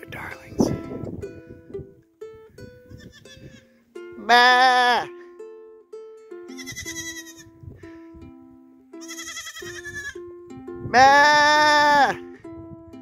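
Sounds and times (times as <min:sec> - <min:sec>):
light ukulele music: 0:00.0 - 0:13.0
goats bleating: 0:04.2 - 0:05.1, 0:06.6 - 0:07.5, 0:09.0 - 0:10.2, 0:10.9 - 0:12.2.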